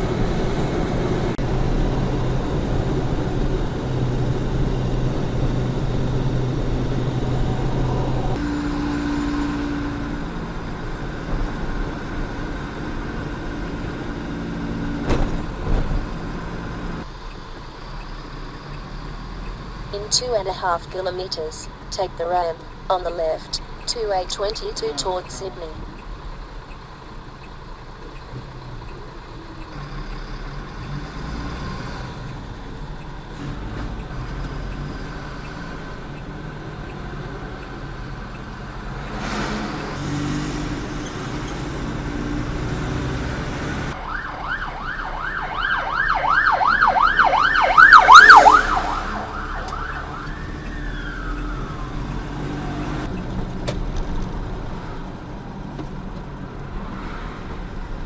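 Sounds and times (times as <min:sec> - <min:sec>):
truck road and engine noise: 0:00.0 - 0:58.0
siren yelping: 0:44.0 - 0:52.8.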